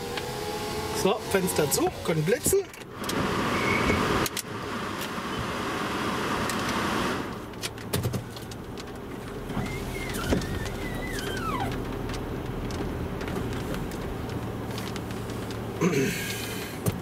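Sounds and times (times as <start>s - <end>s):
power window whirring: 0.0s - 7.4s, 9.2s - 15.7s
car engine humming: 0.0s - 17.0s
high squeak sliding down: 3.4s - 4.0s, 9.6s - 11.8s.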